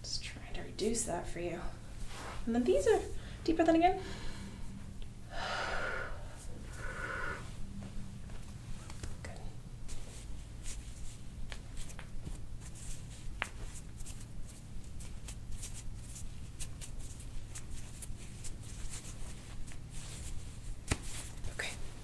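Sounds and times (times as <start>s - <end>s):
low room hum: 0.0s - 22.0s
hands rubbing on clothing: 6.7s - 22.0s.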